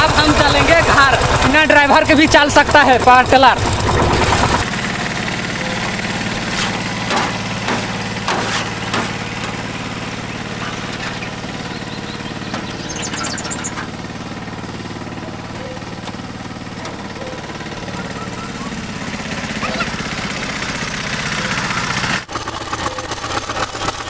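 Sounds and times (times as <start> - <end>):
diesel tiller engine running: 0.0 - 24.0
sharp knocks: 5.8 - 9.7.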